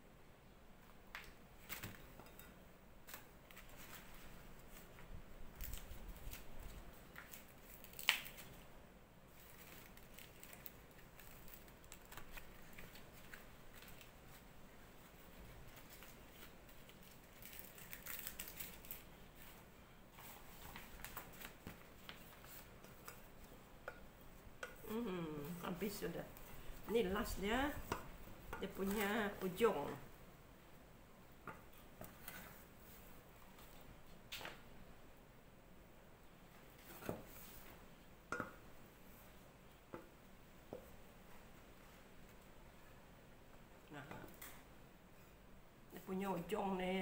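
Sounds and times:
leaf crinkling and rustling: 3.1s - 8.6s, 9.3s - 14.4s, 15.6s - 22.8s.

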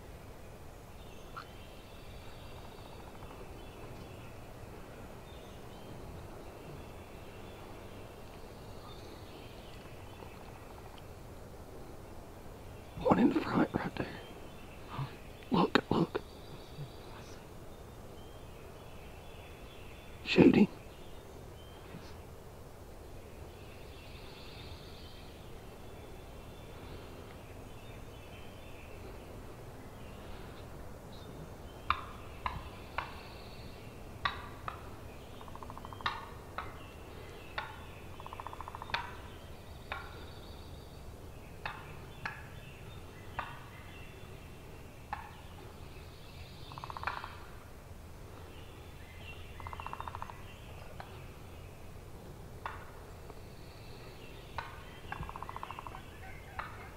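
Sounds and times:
turkey gobbles: 54.6s - 56.9s.

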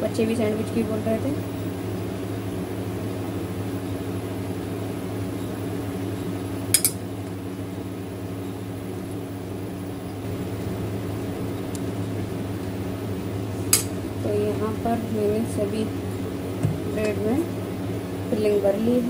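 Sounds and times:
induction cooktop humming: 0.0s - 19.0s
metal spoon clinking steel bowl: 6.8s - 7.0s.

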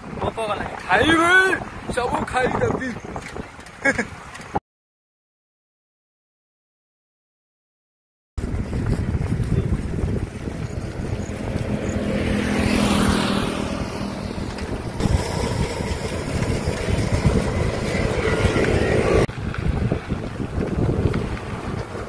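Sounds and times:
road traffic: 0.0s - 4.6s, 8.4s - 22.0s
wind rumble: 0.0s - 4.6s, 8.4s - 22.0s
vehicle passing: 8.5s - 22.0s.

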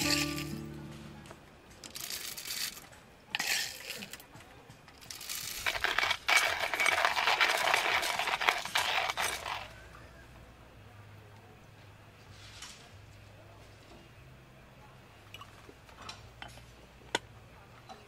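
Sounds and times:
coffee beans rattling: 0.0s - 0.6s, 1.8s - 2.8s, 3.4s - 4.2s, 5.0s - 9.8s
grinder crunching beans: 1.8s - 2.8s, 3.4s - 4.2s, 5.0s - 9.7s.

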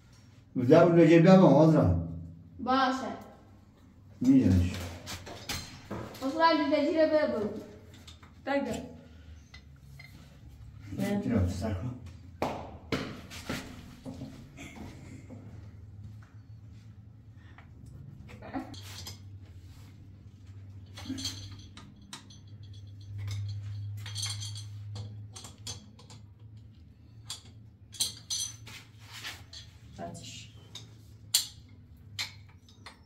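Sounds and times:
metal tool clicking on pipe fitting: 30.7s - 33.0s.

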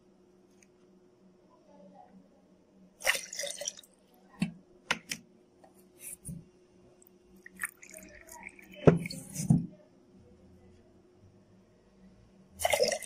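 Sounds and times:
water splashing: 3.0s - 3.8s.

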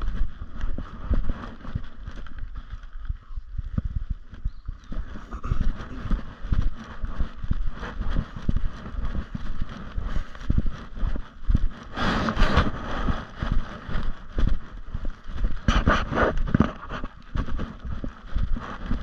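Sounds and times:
footsteps on trail: 0.0s - 19.0s
loud rustle: 4.9s - 19.0s.

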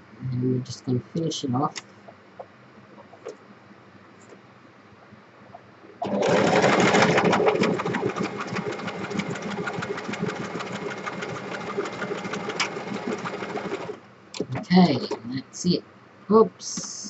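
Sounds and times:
electric sewing machine stitching: 6.0s - 14.0s.

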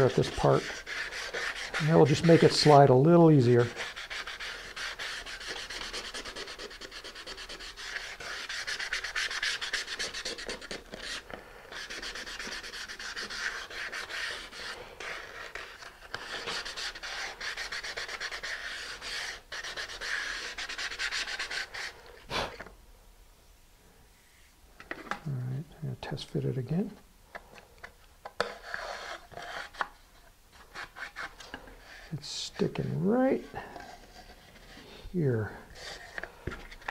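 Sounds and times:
sandpaper rubbing on wood: 0.0s - 22.0s.

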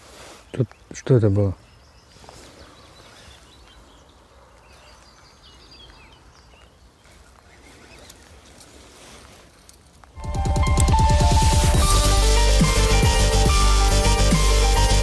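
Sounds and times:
bird chirps: 0.4s - 8.3s.

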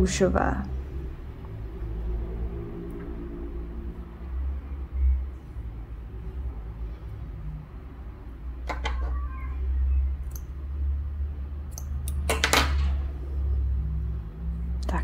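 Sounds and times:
steady low rumble: 0.0s - 8.6s.

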